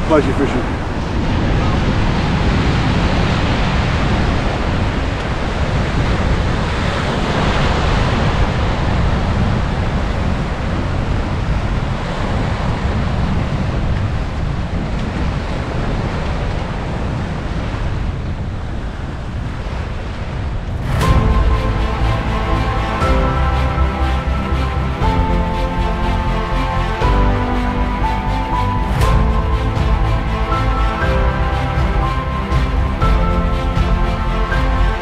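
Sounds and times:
wind buffeting microphone: 0.0s - 23.2s
surf washing on beach: 0.0s - 35.0s
music: 20.8s - 35.0s.

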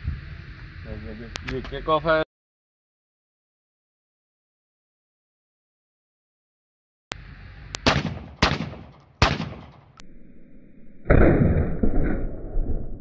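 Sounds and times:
shotgun shots: 7.8s - 10.0s.

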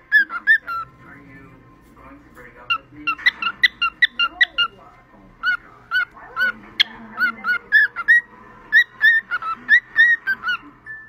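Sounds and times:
cockatiel whistling: 5.4s - 11.0s.

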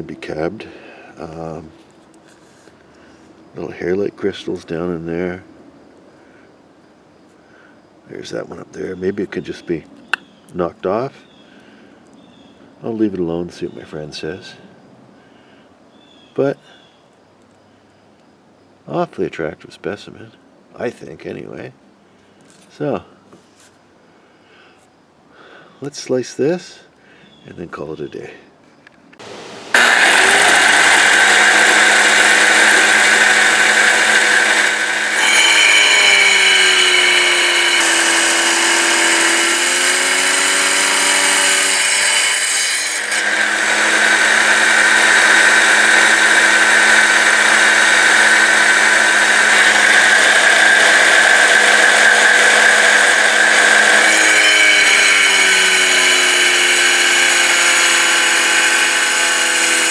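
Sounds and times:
blade grinding whine: 29.2s - 59.9s
rock saw humming: 29.2s - 59.9s.

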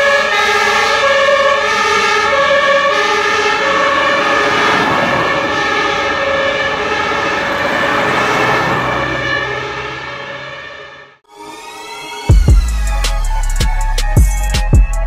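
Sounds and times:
traffic noise: 0.0s - 11.2s
two-tone fire engine sirens: 0.0s - 12.4s.

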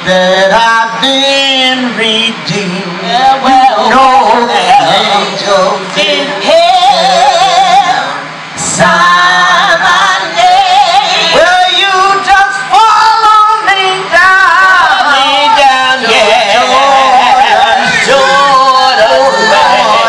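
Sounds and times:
woman singing with vibrato: 0.0s - 20.0s.

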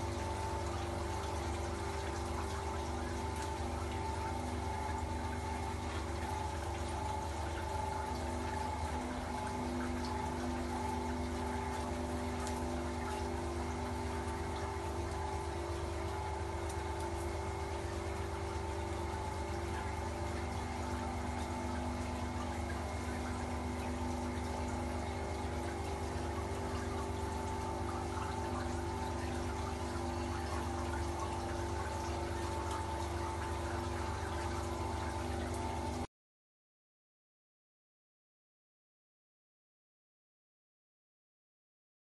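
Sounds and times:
ice machine hum: 0.0s - 36.1s
water running inside drum: 0.0s - 36.1s.

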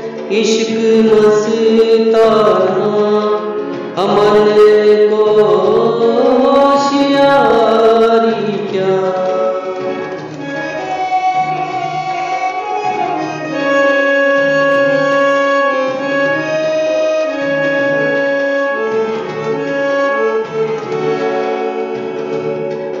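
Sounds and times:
instrumental accompaniment: 0.0s - 23.0s
person singing ornamented phrases: 0.2s - 10.0s.

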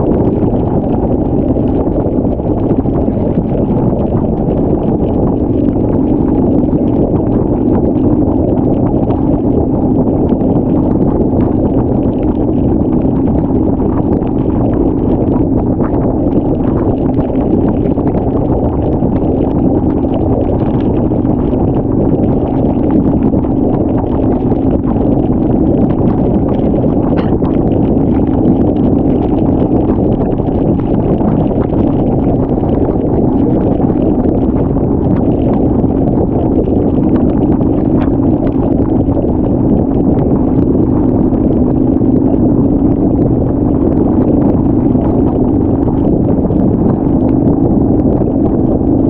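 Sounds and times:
wind rushing past microphone: 0.0s - 49.0s
motorcycle engine running: 23.2s - 30.8s.

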